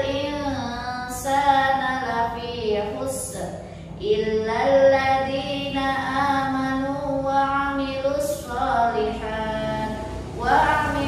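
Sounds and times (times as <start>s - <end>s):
woman chanting a prayer: 0.0s - 11.0s.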